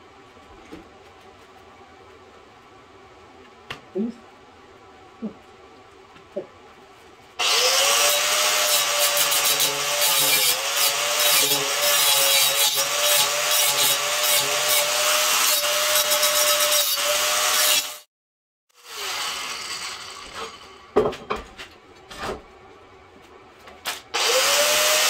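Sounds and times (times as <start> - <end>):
angle grinder grinding steel: 7.4 - 18.1, 18.8 - 20.8, 24.2 - 25.0.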